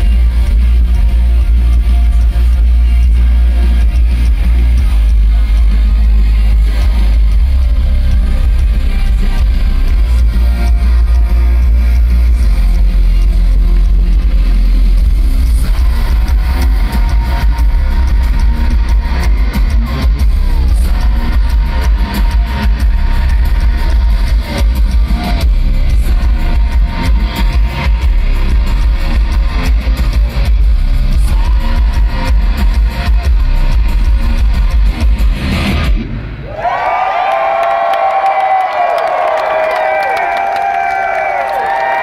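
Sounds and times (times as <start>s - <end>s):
rock band playing live: 0.0s - 36.4s.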